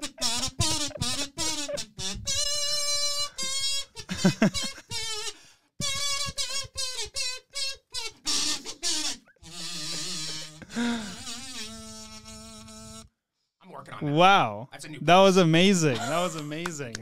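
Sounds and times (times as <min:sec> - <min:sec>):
kazoo tune: 0:00.0 - 0:13.0.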